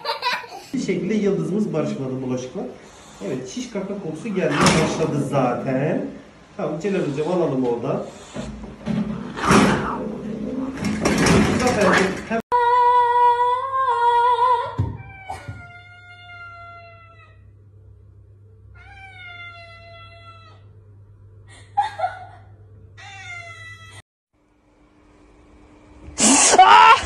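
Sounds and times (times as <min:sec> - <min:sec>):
cat meowing: 0:15.0 - 0:17.4, 0:18.8 - 0:20.7, 0:23.0 - 0:24.0.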